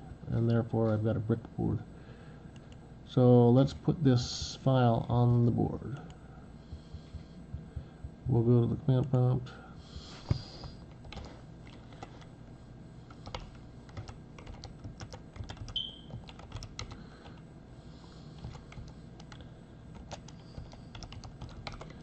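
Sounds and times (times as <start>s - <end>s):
keyboard typing clicks: 10.9s - 12.0s, 13.1s - 17.4s, 18.4s - 19.4s, 20.0s - 22.0s.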